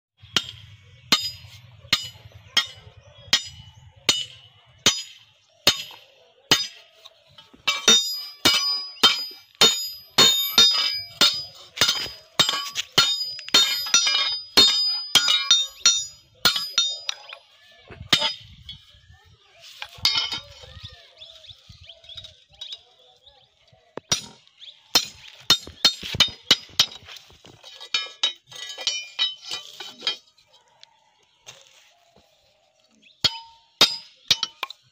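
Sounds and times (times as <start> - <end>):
hammer on metal anvil: 0.3 - 6.8, 7.7 - 17.4, 18.1 - 18.5, 24.1 - 27.0, 33.2 - 34.8.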